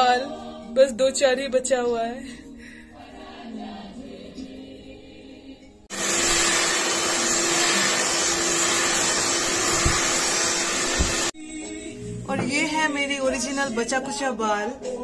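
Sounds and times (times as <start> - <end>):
hair dryer blowing: 5.9 - 11.4.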